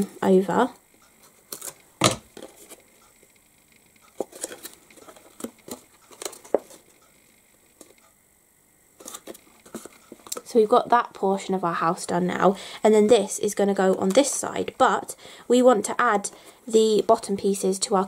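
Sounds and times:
cardboard box clicks and rustles: 4.2s - 6.9s.

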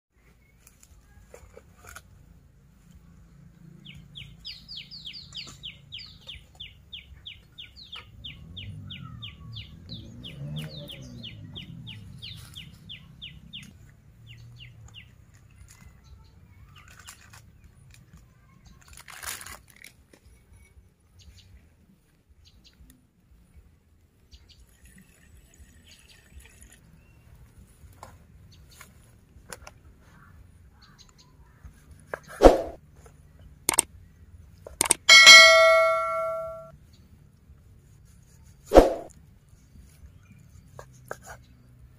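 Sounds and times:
sharp rustle or knock: 32.3s - 32.8s, 38.7s - 39.1s
bird chirping: 34.8s - 36.7s.

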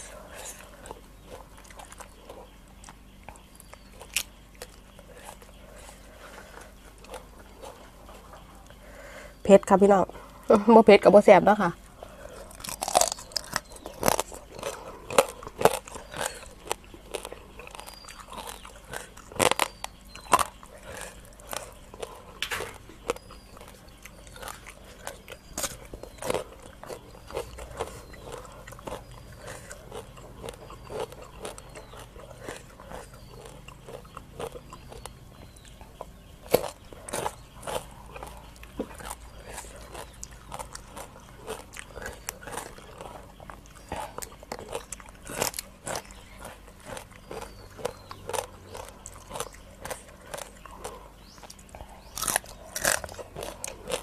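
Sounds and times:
crunching crab shells: 0.0s - 9.2s, 12.0s - 54.0s
wet chewing: 0.0s - 54.0s.

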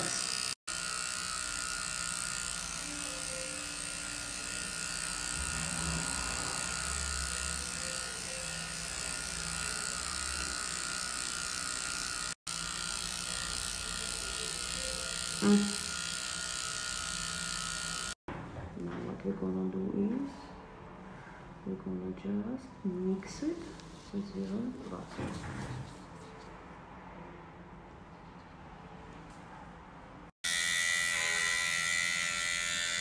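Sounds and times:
small motor buzzing: 0.0s - 18.2s, 30.4s - 33.0s.

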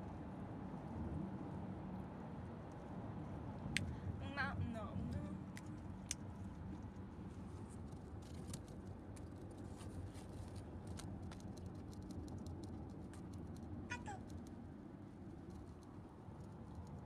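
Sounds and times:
car rumble from inside cabin: 4.2s - 5.5s.

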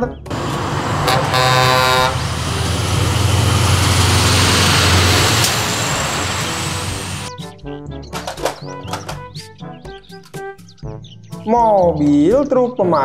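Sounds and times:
truck engine and tyres passing: 0.2s - 7.3s
truck horn: 0.3s - 7.3s.

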